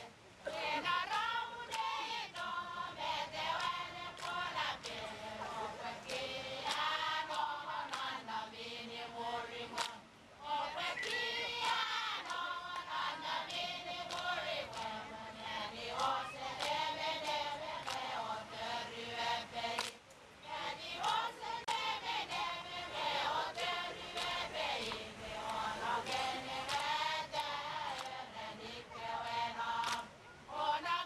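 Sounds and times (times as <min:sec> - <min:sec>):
women chanting in unison: 0:00.0 - 0:31.0.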